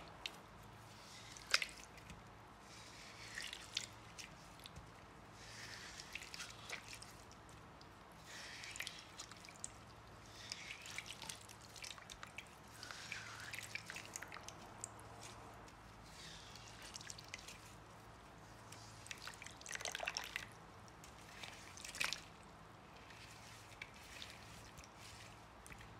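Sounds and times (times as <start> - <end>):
water dripping: 5.6 - 15.4, 18.7 - 22.4.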